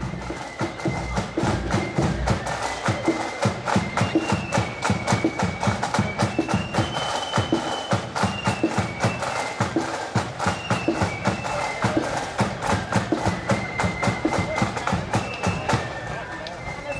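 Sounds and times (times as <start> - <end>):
marching band playing: 0.0 - 16.9.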